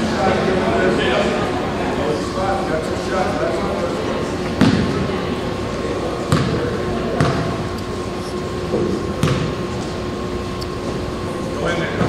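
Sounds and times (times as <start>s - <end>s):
murmur of voices: 0.0s - 12.0s
basketball bouncing on gym floor: 6.3s - 7.6s, 8.8s - 9.6s.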